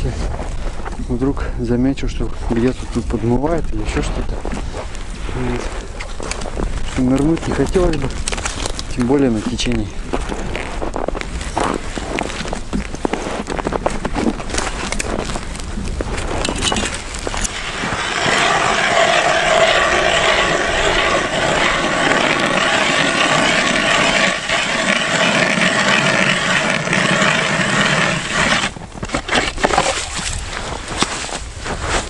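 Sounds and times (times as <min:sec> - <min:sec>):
footsteps crunching in snow: 0:04.3 - 0:24.2, 0:24.8 - 0:32.0
knocks and scrapes: 0:11.6 - 0:32.0
ice auger grinding: 0:16.4 - 0:30.4.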